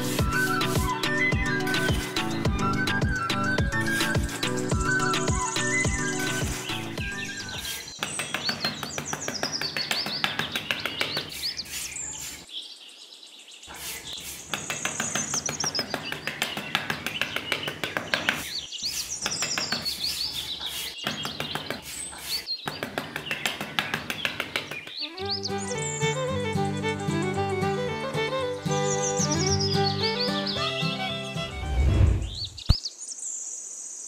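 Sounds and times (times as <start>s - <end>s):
birds chirping: 0.0s - 33.4s.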